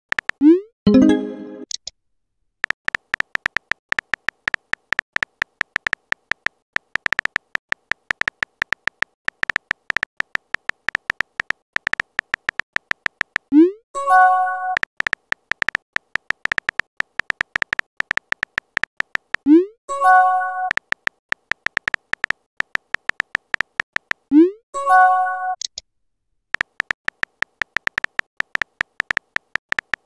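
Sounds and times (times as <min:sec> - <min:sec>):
electronic keyboard ticks: 0:00.1 - 0:00.6, 0:02.6 - 0:24.6, 0:26.5 - 0:30.0.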